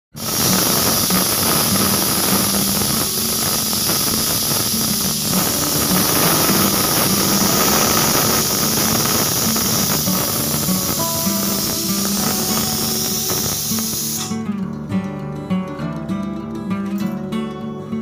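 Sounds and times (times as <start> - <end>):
pressure cooker whistling: 0.1 - 14.4.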